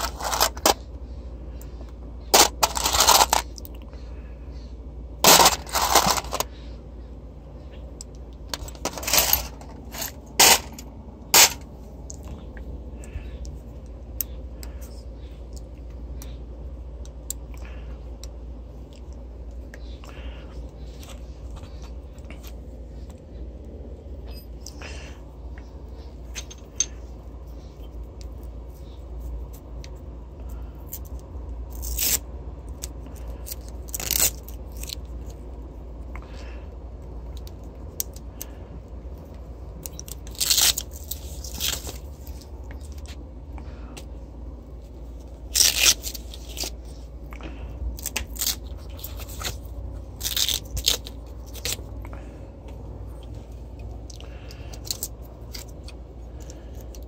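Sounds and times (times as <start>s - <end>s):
scrapes crunches and tearing: 0.0s - 0.8s, 2.3s - 3.7s, 5.2s - 6.6s, 8.6s - 11.6s, 30.8s - 35.4s, 39.8s - 43.2s, 44.9s - 52.0s
steady low hum: 0.0s - 57.0s.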